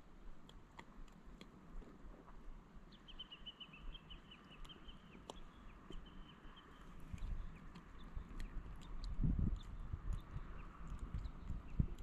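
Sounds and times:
bird chirping: 0:02.9 - 0:12.0.

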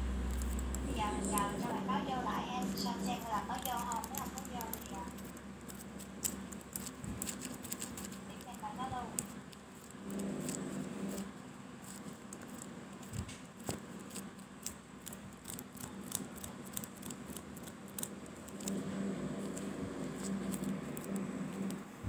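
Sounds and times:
faint low hum: 0:00.0 - 0:22.0
light clicks and scratchy ticks: 0:02.8 - 0:11.3, 0:11.9 - 0:21.8.

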